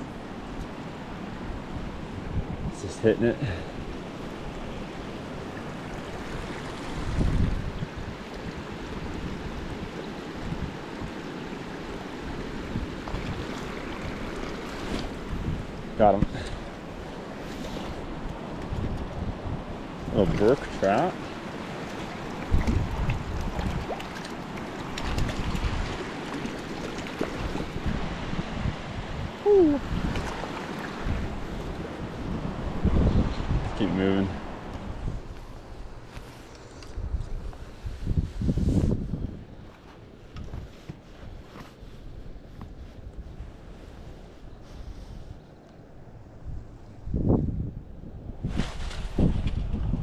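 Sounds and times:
wind rushing over microphone: 0.0 - 24.2, 25.0 - 50.0
water sloshing and dripping: 20.3 - 27.9.

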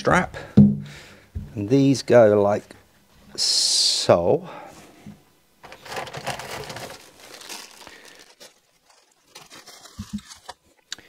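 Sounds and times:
plastic bag crinkling: 5.6 - 10.8.

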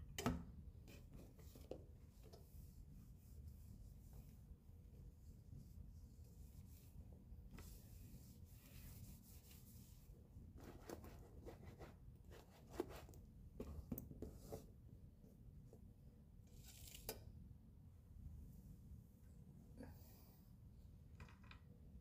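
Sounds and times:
cloth rubbing on wooden tabletop: 7.6 - 10.0.

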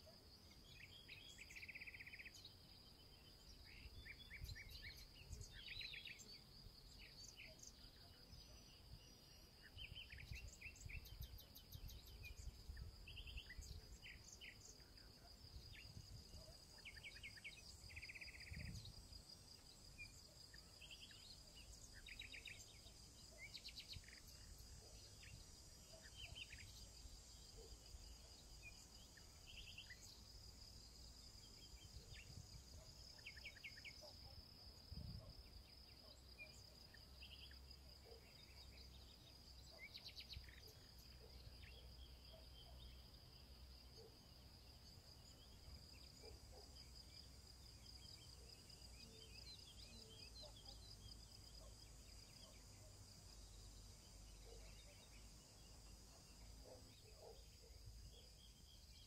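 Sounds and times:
wind rumble on microphone: 18.5 - 19.0
bird chirps: 19.6 - 30.3.

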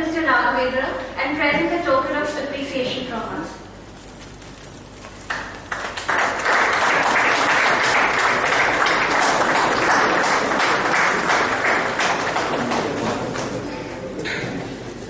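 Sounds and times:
audience applauding: 5.2 - 14.7.

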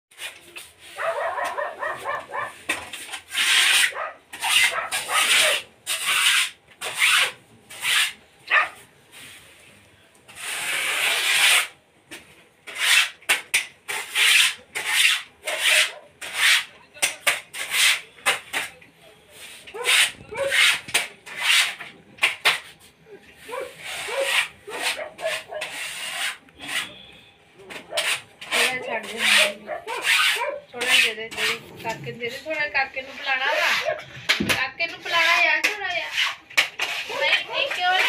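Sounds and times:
rustling and rubbing: 0.1 - 11.7, 19.2 - 27.0, 27.8 - 38.0.

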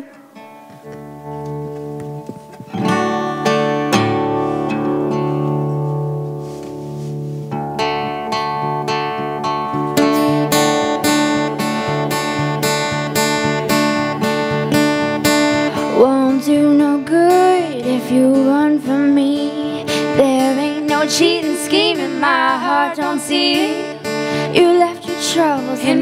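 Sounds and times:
acoustic guitars strumming: 0.0 - 26.0
girl singing: 15.7 - 26.0.

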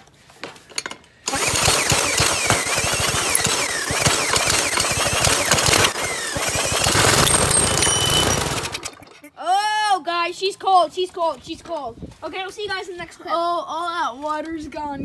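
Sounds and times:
small engine turning over: 1.2 - 9.2
drill whine: 1.3 - 9.0.

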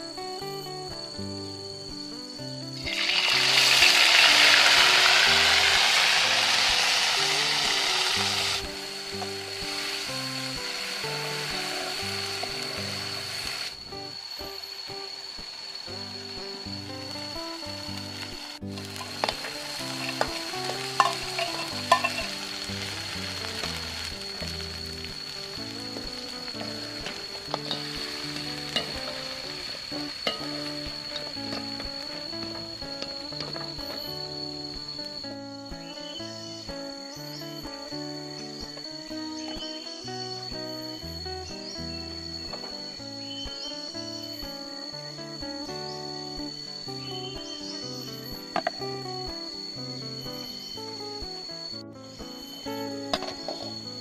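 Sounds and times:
background music: 0.0 - 54.0
paste sizzling in hot oil: 2.8 - 34.3
metal spatula clicking on pan: 21.0 - 22.3.

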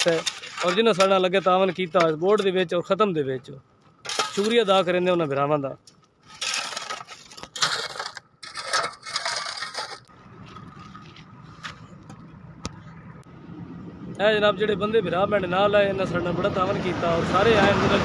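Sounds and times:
shovel scraping soil and gravel: 0.0 - 2.5, 4.0 - 4.8, 6.2 - 11.8
outdoor background: 0.0 - 18.0.

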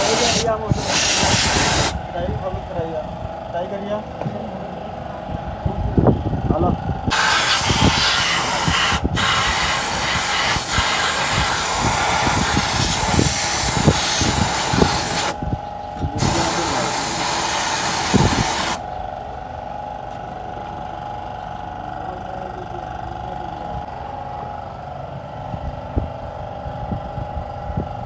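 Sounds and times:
air blow gun hissing: 0.0 - 2.0, 7.1 - 15.4, 16.2 - 18.8
steady hum: 0.0 - 28.0.

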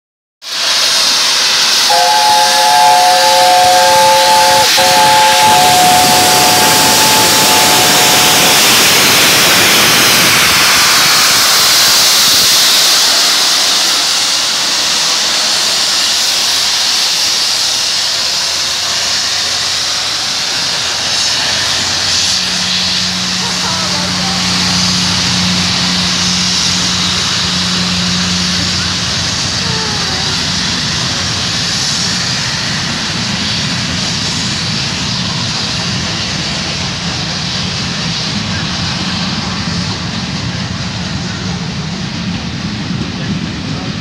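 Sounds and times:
steam hissing: 0.4 - 44.0
steam whistle chord: 1.8 - 12.0, 20.9 - 31.8.

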